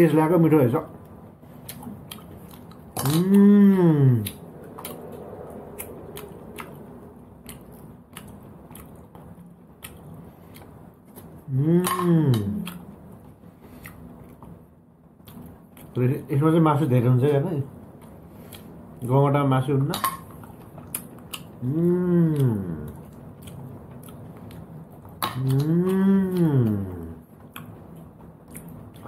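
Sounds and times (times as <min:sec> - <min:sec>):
chewing: 0:01.0 - 0:11.5, 0:12.4 - 0:14.6, 0:15.2 - 0:16.0, 0:17.9 - 0:19.1, 0:20.3 - 0:29.0
person making voiced sound: 0:03.0 - 0:04.4, 0:11.5 - 0:12.7, 0:21.6 - 0:22.9, 0:25.4 - 0:27.2.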